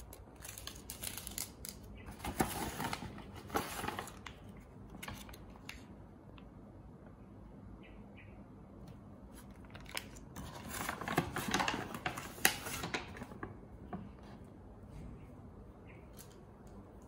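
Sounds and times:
plastic sachets crinkling: 0.0s - 5.8s, 9.4s - 13.6s.

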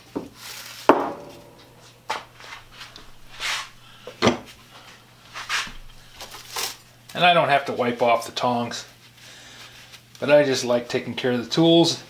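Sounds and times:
dull knocks on wooden bench: 0.9s - 1.4s
brief rubbing sound: 2.1s - 3.8s, 5.2s - 6.5s.

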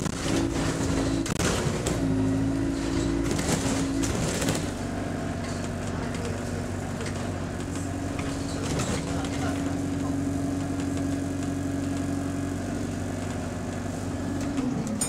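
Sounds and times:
bus diesel engine droning: 0.0s - 15.0s
interior rattles: 2.8s - 12.0s.

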